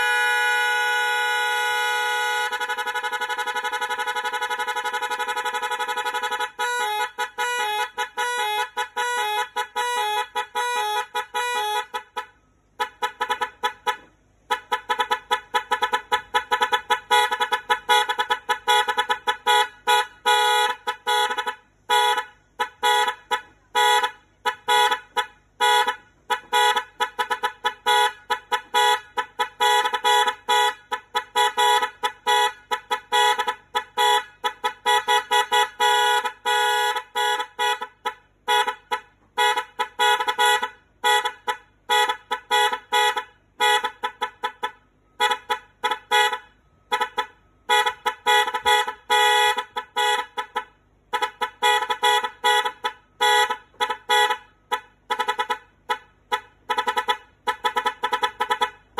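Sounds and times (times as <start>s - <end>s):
electric horns honking: 0.0s - 58.9s.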